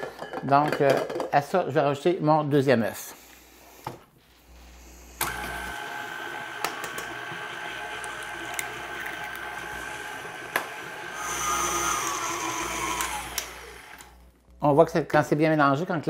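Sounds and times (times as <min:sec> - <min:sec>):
stand mixer motor whining: 0:05.2 - 0:14.3.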